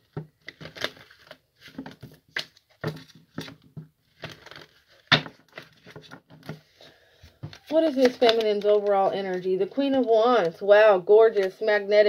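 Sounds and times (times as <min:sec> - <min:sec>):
cards being shuffled: 0:00.4 - 0:06.6, 0:07.3 - 0:10.5.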